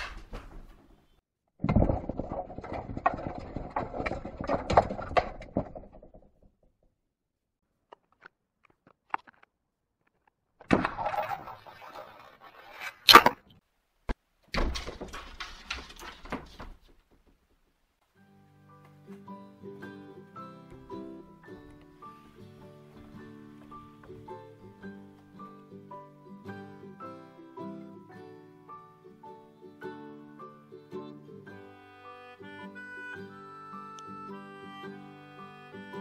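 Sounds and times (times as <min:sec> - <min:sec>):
cat scrabbling at sliding door: 0:14.6 - 0:17.2
scraping and rustling: 0:14.8 - 0:17.5.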